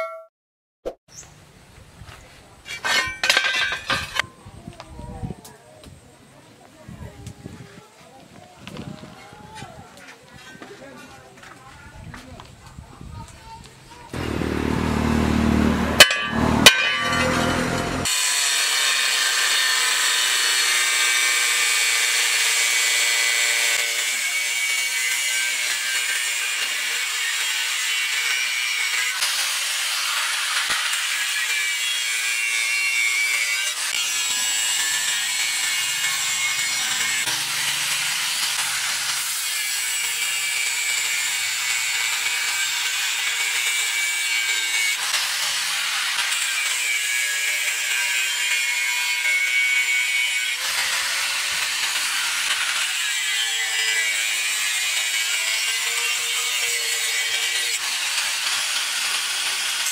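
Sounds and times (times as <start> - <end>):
angle grinder cutting steel: 2.7 - 4.3, 14.1 - 59.9.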